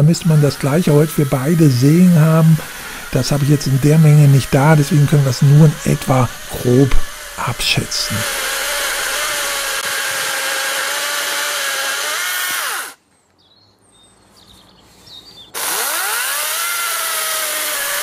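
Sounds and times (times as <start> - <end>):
chainsaw cutting log: 0.0 - 13.0, 15.6 - 18.0.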